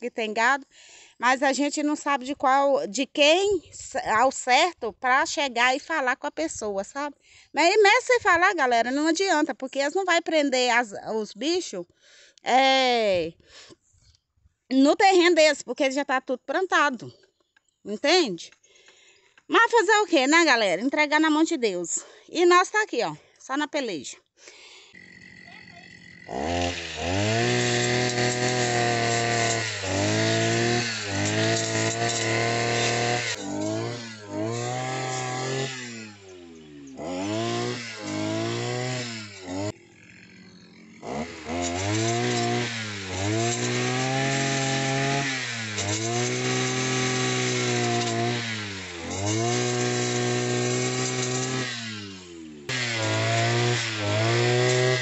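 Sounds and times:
brushcutter engine revving: 24.6 - 55.0.

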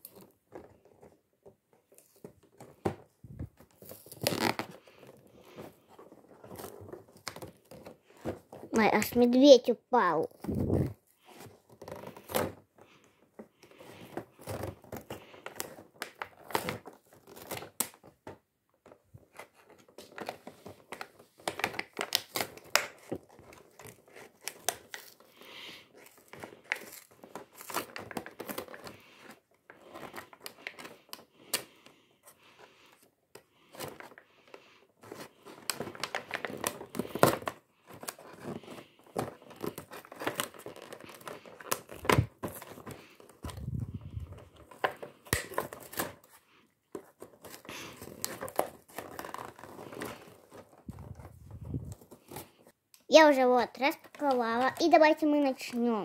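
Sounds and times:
plastic packaging crinkling: 2.0 - 9.2, 18.8 - 31.2, 35.0 - 46.4, 47.0 - 52.7.

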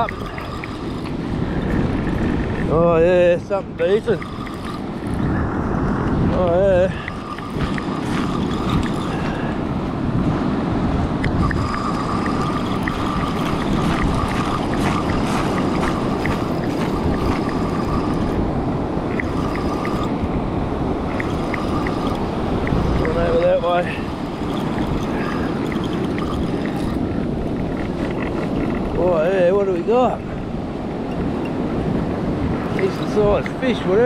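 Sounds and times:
fishing reel gears whining: 0.0 - 2.8, 3.4 - 5.3, 6.8 - 9.7, 11.2 - 20.2, 21.0 - 29.4
wind on microphone: 0.0 - 34.0.

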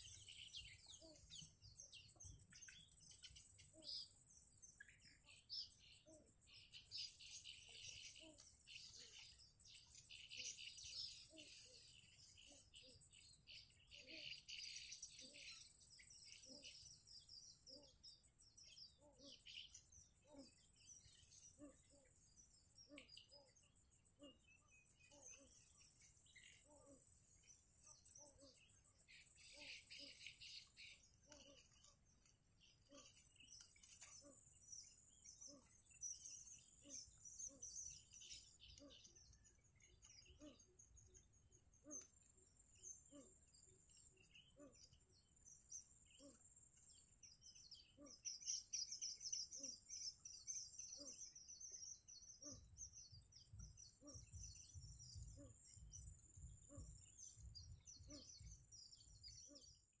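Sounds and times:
bird chirps: 0.0 - 60.0
insects trilling: 0.0 - 60.0.

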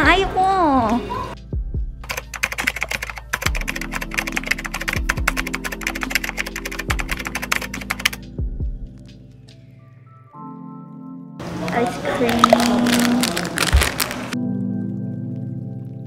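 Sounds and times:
soft music with low beat: 1.4 - 11.4, 13.6 - 16.0
keyboard typing: 2.0 - 8.2.

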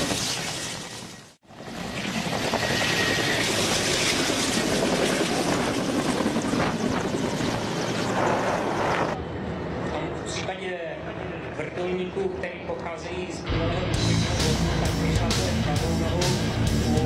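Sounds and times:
helicopter rotor and engine: 0.5 - 12.2.

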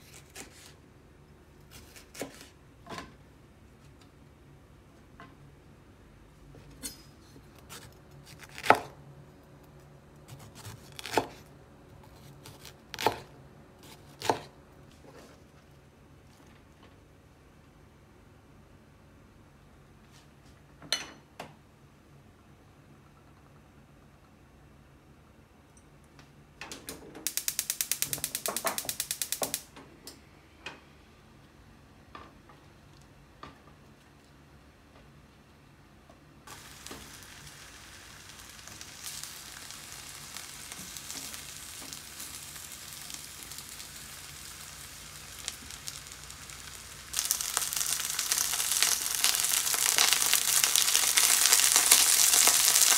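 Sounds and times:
knife slicing pepper: 0.0 - 0.7, 1.7 - 2.5, 10.3 - 14.5
gas stove igniter clicking: 27.3 - 29.7.

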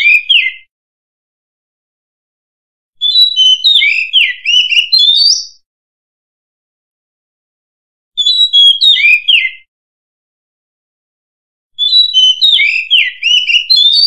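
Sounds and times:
bird singing whistled notes: 0.0 - 0.7, 3.0 - 5.6, 8.2 - 9.7, 11.8 - 14.0.

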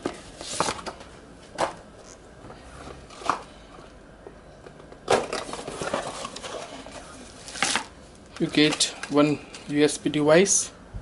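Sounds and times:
cardboard box scraping rustles: 5.4 - 7.9.

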